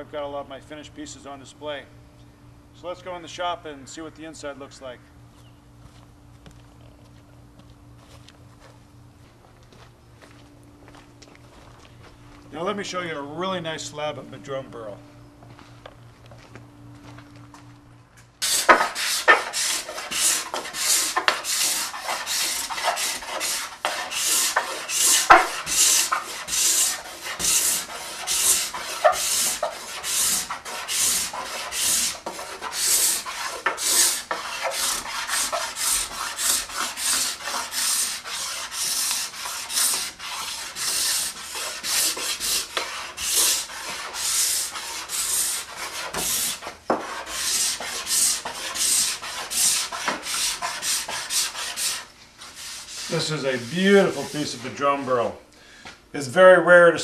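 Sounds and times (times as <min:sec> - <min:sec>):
card scraper rasping on wood: 0:18.4 - 0:54.5.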